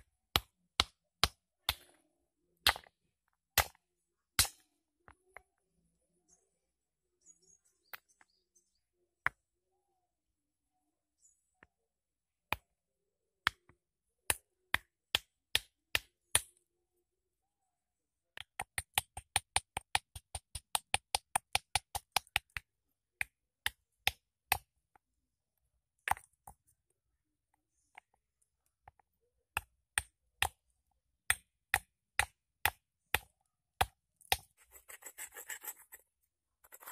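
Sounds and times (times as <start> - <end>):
stone striking stone: 0.3 - 5.4, 13.4 - 16.6, 31.2 - 34.5.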